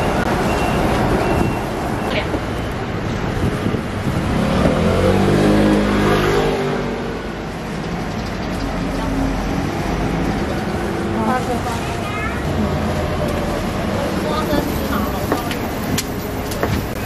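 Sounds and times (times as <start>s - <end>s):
street traffic noise: 0.0s - 17.0s
vehicle engine passing by: 3.3s - 14.6s.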